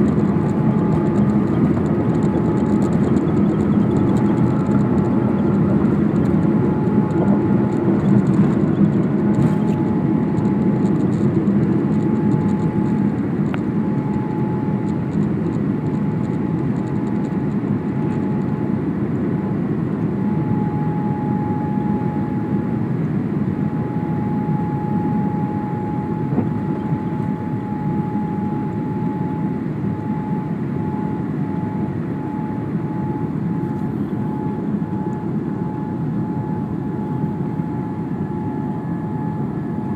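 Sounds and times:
jet engines at takeoff: 0.0s - 39.9s
steady high hum: 0.0s - 39.9s.

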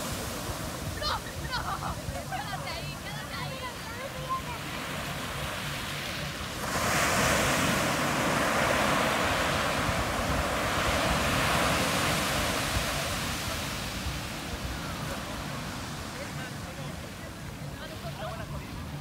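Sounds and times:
ocean surf breaking on beach: 0.0s - 19.0s.

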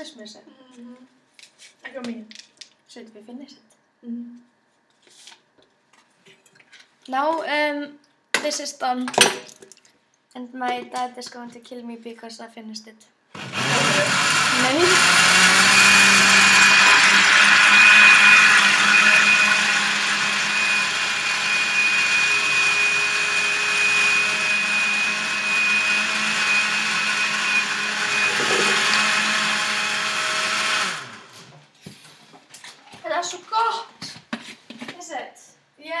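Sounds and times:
blender whining: 13.4s - 31.5s.

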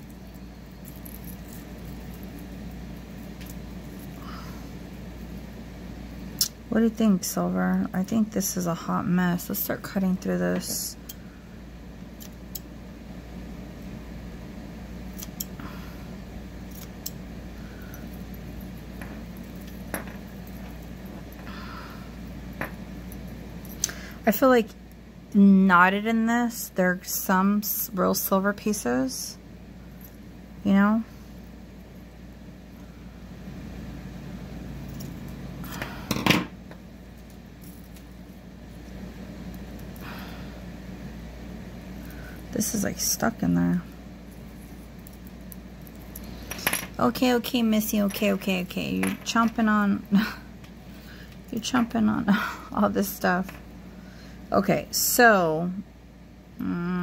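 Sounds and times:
metal jewelry clinking: 0.0s - 4.3s, 17.8s - 21.5s, 34.8s - 35.4s, 37.2s - 38.4s
steady low hum: 0.0s - 57.0s.

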